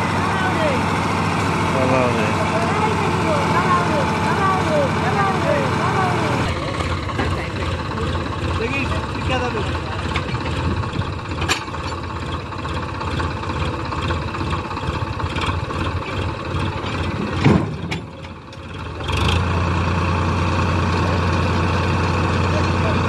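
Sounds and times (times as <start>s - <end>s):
diesel tractor engine running: 0.0s - 23.0s
short thump: 17.4s - 18.0s.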